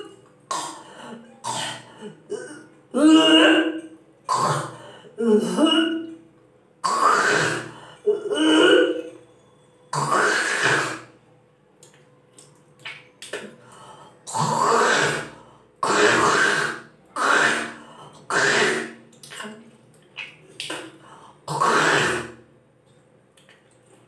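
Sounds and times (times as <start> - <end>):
woman retching and gagging: 0.0 - 6.2, 6.8 - 9.2, 14.3 - 19.7, 21.5 - 22.4
woman spitting: 14.3 - 22.4.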